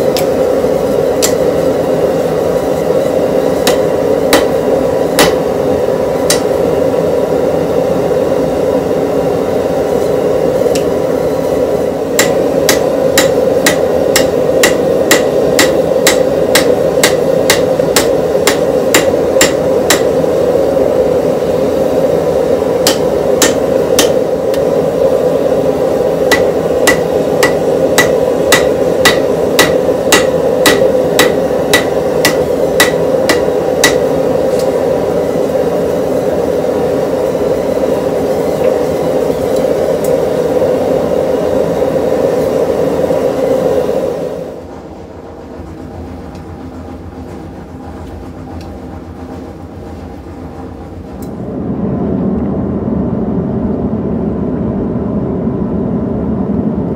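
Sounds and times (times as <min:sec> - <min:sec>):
low rushing hum: 0:00.0 - 0:56.9
hammer striking steel on anvil: 0:01.2 - 0:01.6, 0:03.5 - 0:05.6, 0:06.2 - 0:06.6, 0:12.1 - 0:20.3, 0:22.8 - 0:24.7, 0:26.2 - 0:34.8.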